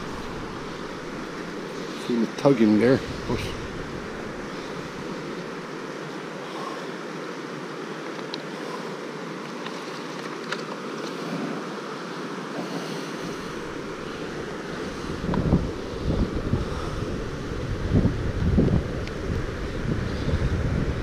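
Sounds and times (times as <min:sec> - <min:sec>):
wind rumble on microphone: 0:00.0 - 0:05.7, 0:13.2 - 0:21.0
river water rushing over weir: 0:00.0 - 0:19.8.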